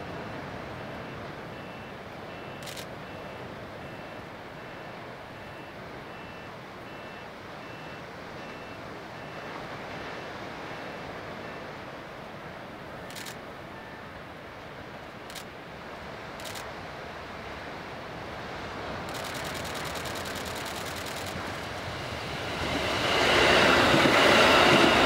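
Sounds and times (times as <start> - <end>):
distant diesel train rumbling: 18.2 - 25.0
sharp click: 19.1 - 21.6.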